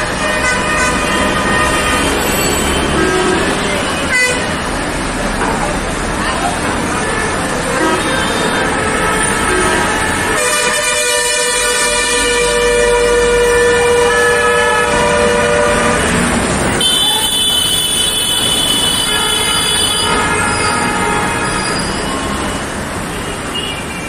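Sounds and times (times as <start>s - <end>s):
passing buses and motorbikes: 0.0s - 24.0s
higher-pitched vehicle horn: 0.1s - 4.6s, 7.6s - 24.0s
vehicle horn blowing: 7.8s - 16.1s, 16.7s - 22.3s.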